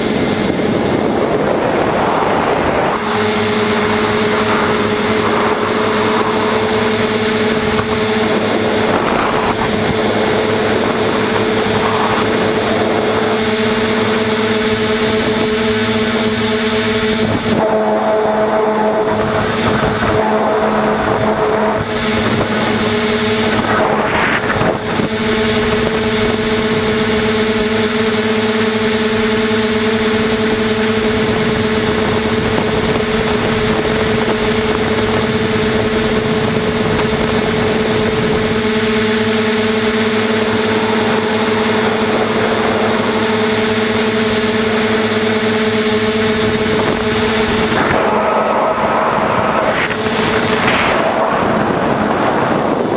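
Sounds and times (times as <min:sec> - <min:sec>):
air rushing past: 0:00.0 - 0:26.9, 0:46.2 - 0:52.9
drone motors and propellers whining: 0:00.0 - 0:52.9.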